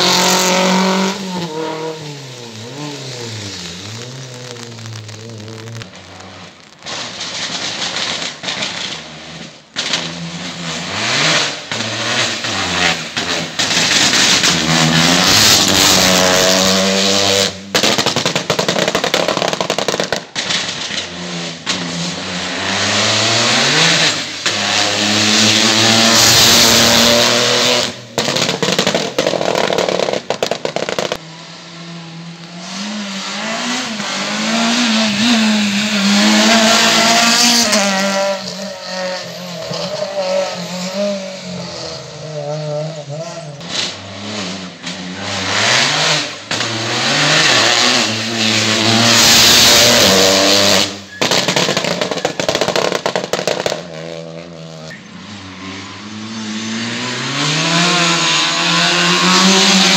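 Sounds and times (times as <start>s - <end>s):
race cars accelerating past: 53.9s - 59.9s.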